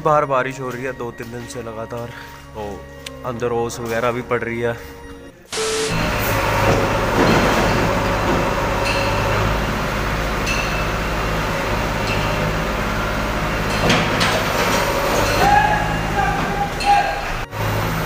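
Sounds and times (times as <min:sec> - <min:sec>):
backhoe loader working: 0:05.4 - 0:18.0
heavy diesel machinery running: 0:05.5 - 0:18.0.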